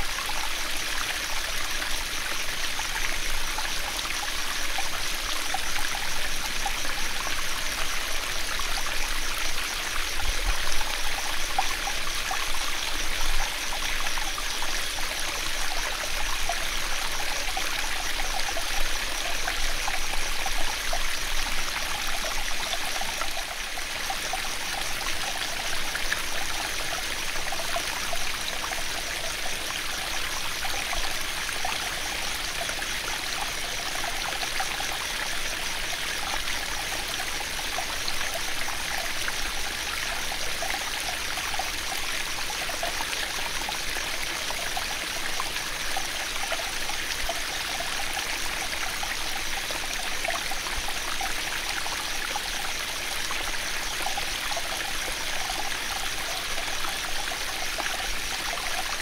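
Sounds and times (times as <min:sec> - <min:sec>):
insects trilling: 0:00.0 - 0:59.0
small stream running: 0:00.0 - 0:59.0.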